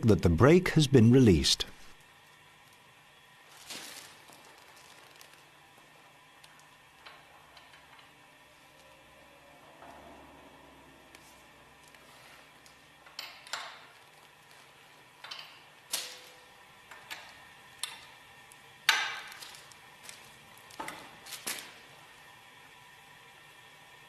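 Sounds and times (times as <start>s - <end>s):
spanner clinking on metal: 15.2s - 15.7s.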